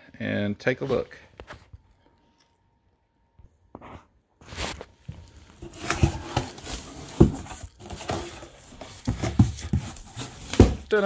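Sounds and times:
cardboard scraping and rustling: 4.4 - 11.0.

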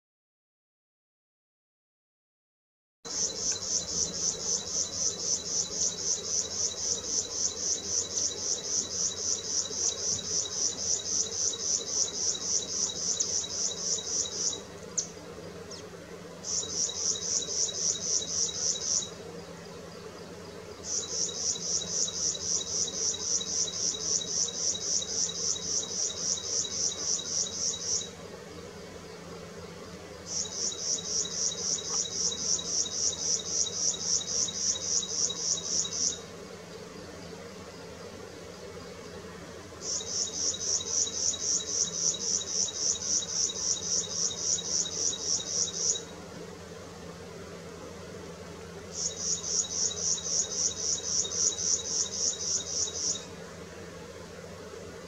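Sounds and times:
insect chirring: 3.1 - 15.2, 16.4 - 19.2, 20.8 - 28.2, 30.3 - 36.3, 39.8 - 46.2, 48.9 - 53.3.

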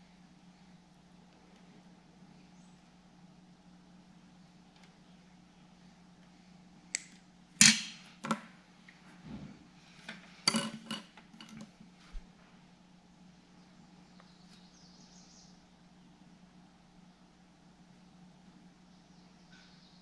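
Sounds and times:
steady low hum: 0.0 - 20.0
pliers clicking and rattling wires: 6.9 - 8.5, 10.1 - 11.7.

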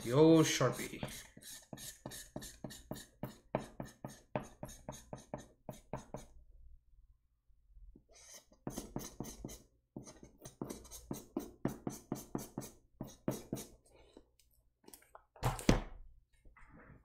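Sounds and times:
marker scribbling on label: 0.5 - 6.3, 8.1 - 13.7.

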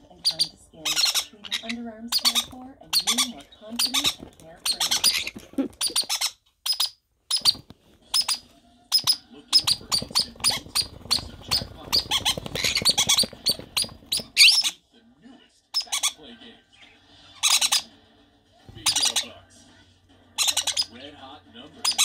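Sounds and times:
chicks begging squeaks: 0.1 - 14.8, 15.8 - 16.2, 17.4 - 17.9, 18.7 - 19.3, 20.4 - 21.0.

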